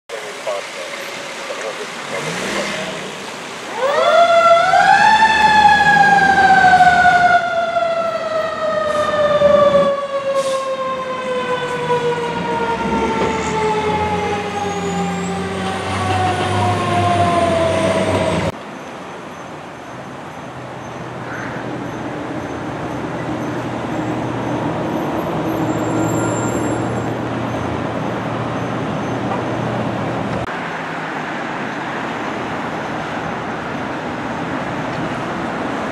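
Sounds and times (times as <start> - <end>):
fire engine siren wailing: 3.7 - 18.6.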